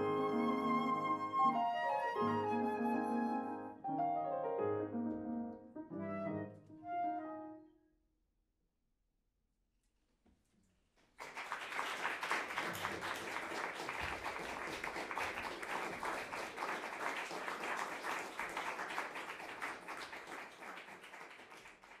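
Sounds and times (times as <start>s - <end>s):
audience applause: 11.1s - 22.0s.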